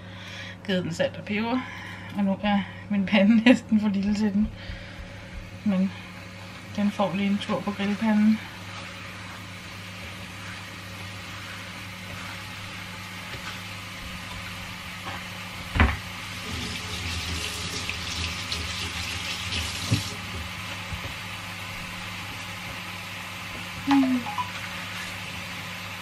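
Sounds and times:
tap running into sink: 19.5s - 20.2s.

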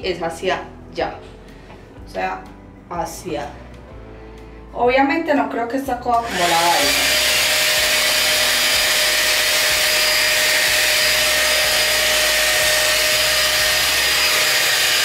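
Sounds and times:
hot air styler fan blowing: 6.2s - 15.0s.

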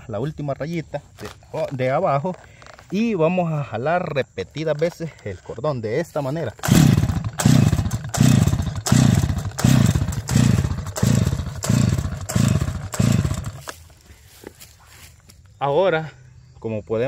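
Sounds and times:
engine turning over whirr: 4.8s - 14.1s
starter cord yanked: 6.4s - 13.8s.

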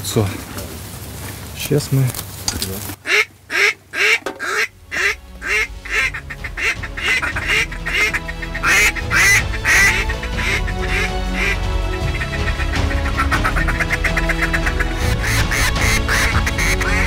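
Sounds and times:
background music with held tones: 4.4s - 17.0s.

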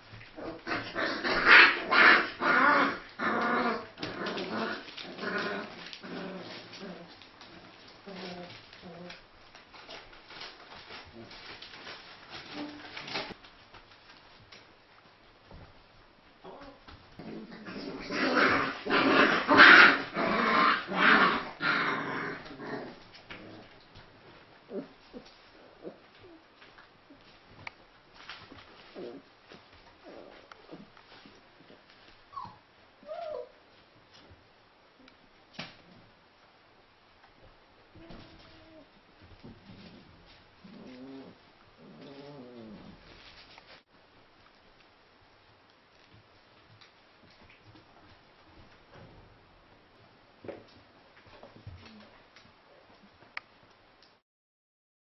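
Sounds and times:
puppies growling and yelping: 0.2s - 9.2s, 16.4s - 23.8s, 24.7s - 26.4s, 30.0s - 30.9s, 32.3s - 33.6s, 39.7s - 43.4s.

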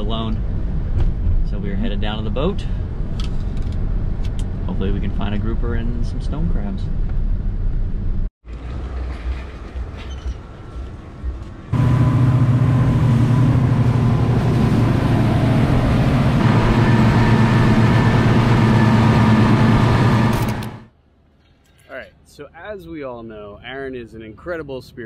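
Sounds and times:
outboard motors running: 11.7s - 20.9s.

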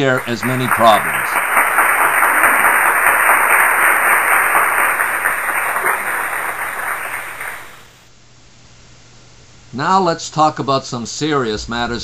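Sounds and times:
audience applause: 0.0s - 8.0s
low steady hum: 11.0s - 12.0s.

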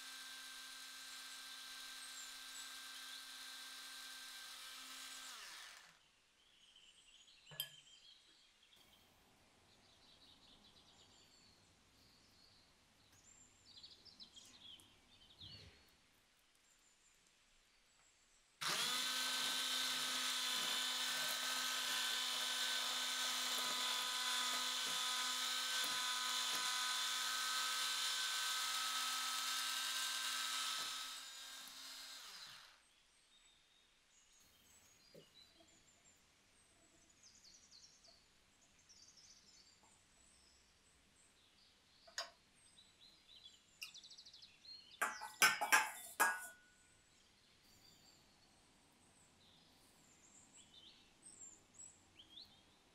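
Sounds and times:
electric hand mixer whirring: 0.0s - 6.0s, 18.6s - 32.8s.

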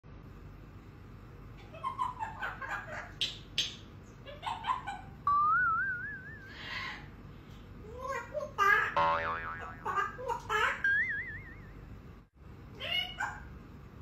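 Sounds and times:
parrot wavering whistle: 5.3s - 7.0s.

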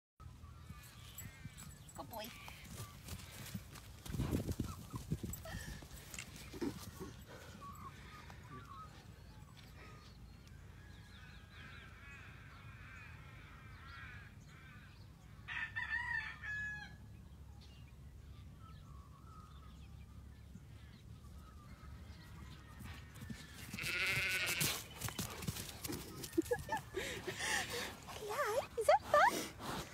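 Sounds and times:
rooster crowing: 15.5s - 17.0s.

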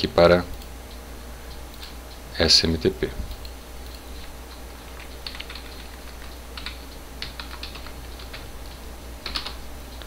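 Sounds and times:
low steady hum: 0.0s - 10.0s
keyboard typing: 3.3s - 10.0s.

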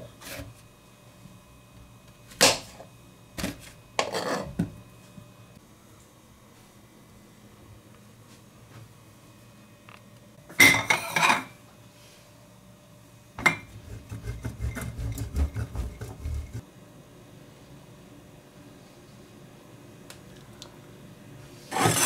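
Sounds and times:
grater rasping through cheese: 13.7s - 16.6s, 21.7s - 22.0s.

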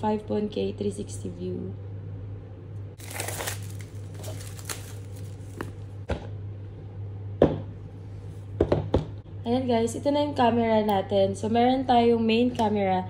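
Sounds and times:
steady low hum: 0.0s - 13.0s
packaging rustling and scraping: 3.0s - 5.9s.

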